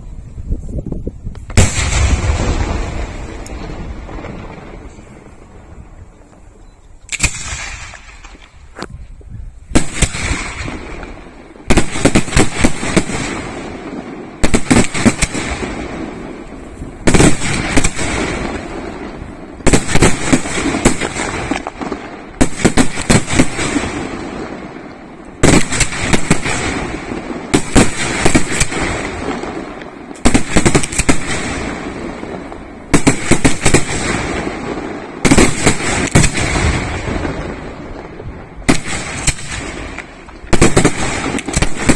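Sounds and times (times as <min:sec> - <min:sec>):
firework shells bursting: 0:09.7 - 0:41.9.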